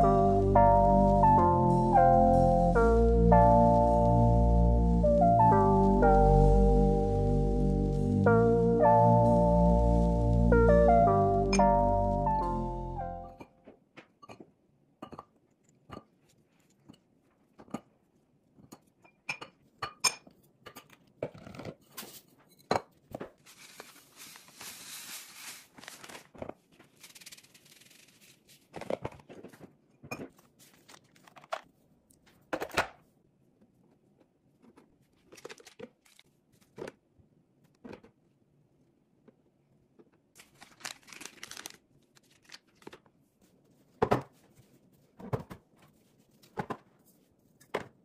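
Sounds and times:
packaging crinkling: 0:23.4 - 0:29.3, 0:35.2 - 0:36.3, 0:40.4 - 0:43.0
salt pouring into jar: 0:23.5 - 0:25.7.

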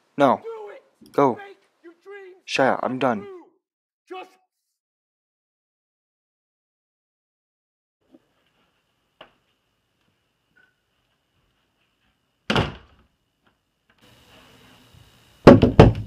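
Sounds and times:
wooden door thumping shut: 0:12.5 - 0:13.0, 0:15.4 - 0:16.0
knocking on door: 0:15.4 - 0:16.0.

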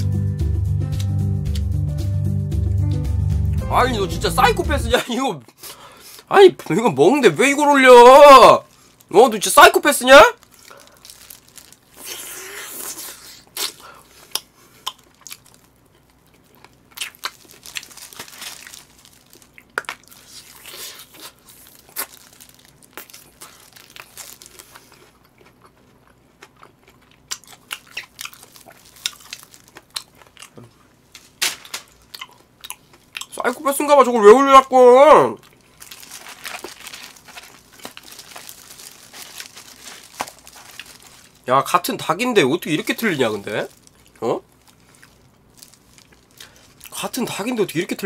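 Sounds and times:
crunching fried chicken: 0:07.4 - 0:34.1, 0:35.3 - 0:48.0
chewing: 0:19.4 - 0:30.8.

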